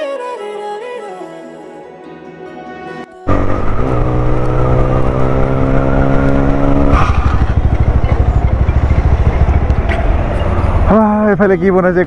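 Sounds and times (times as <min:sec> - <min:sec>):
motorcycle engine running: 0:03.3 - 0:11.0.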